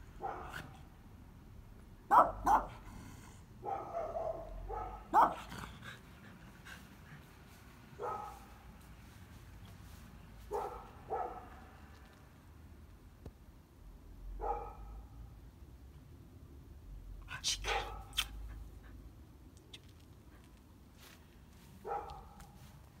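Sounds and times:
dog barking: 0.2 - 0.8, 2.1 - 2.8, 3.6 - 5.5, 8.0 - 8.6, 10.5 - 11.8, 14.4 - 15.2, 17.6 - 18.3, 21.8 - 22.6.

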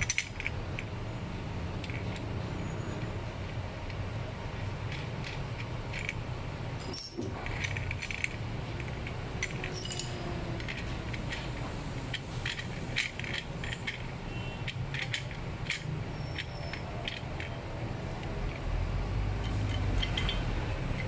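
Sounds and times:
light metallic clicks and clinks: 6.8 - 17.6, 19.3 - 21.0.

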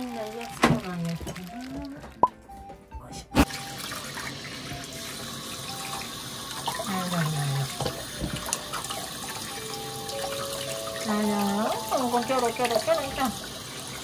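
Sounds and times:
water spraying from shower head: 3.4 - 14.0.

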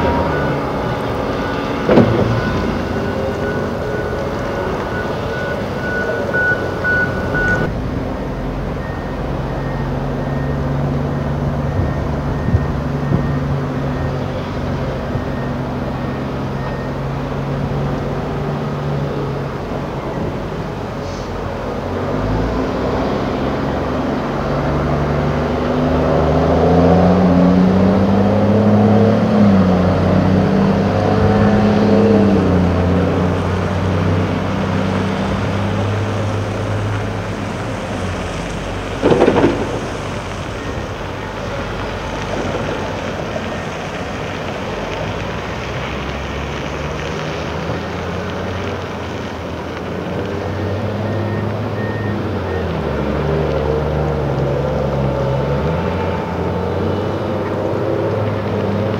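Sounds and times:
heavy diesel engine working: 0.0 - 58.9
short loud crash: 1.8 - 3.0, 39.0 - 40.8.

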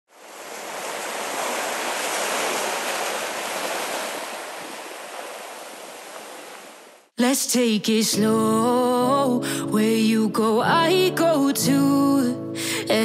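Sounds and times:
surf washing over rocks: 0.1 - 7.1.

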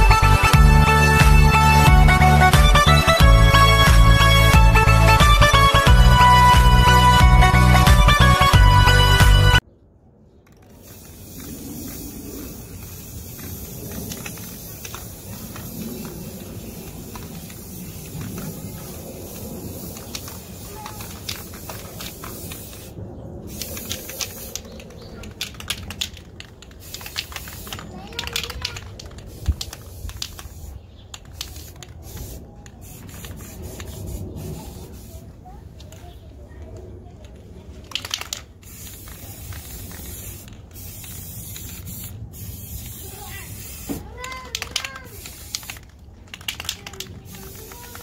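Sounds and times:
spray paint can hissing: 0.0 - 9.6, 10.4 - 36.1, 37.8 - 48.0
sharp clicks: 23.5 - 34.0, 37.8 - 41.8, 43.8 - 48.0.

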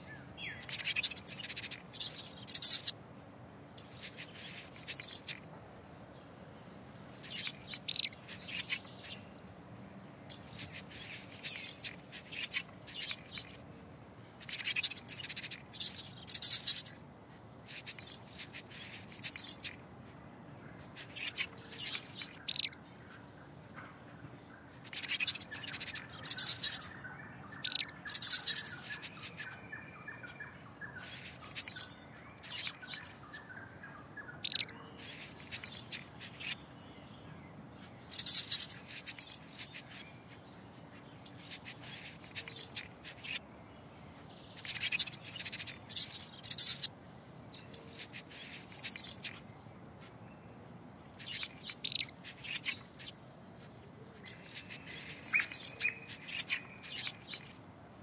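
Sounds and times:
mouse squeaking: 0.6 - 3.0, 3.8 - 5.4, 7.2 - 9.2, 10.3 - 13.6, 14.4 - 17.0, 17.6 - 19.8, 20.9 - 22.8, 24.8 - 27.0, 27.6 - 29.6, 31.0 - 33.2, 34.4 - 36.6, 38.1 - 40.1, 41.2 - 43.4, 44.6 - 46.9, 47.7 - 49.4, 51.2 - 53.2, 54.2 - 57.6.

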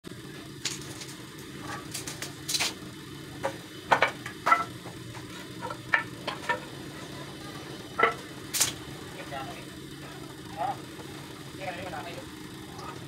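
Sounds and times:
low background hum: 0.0 - 13.0
wooden planks knocking: 3.4 - 6.7, 8.0 - 8.2.

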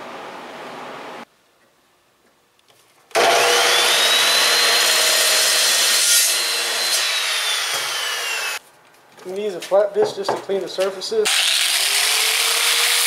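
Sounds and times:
chop saw motor whine: 3.1 - 8.6.

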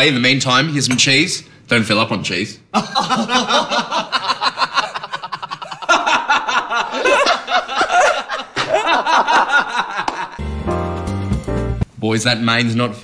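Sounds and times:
men laughing loudly: 2.7 - 10.4.

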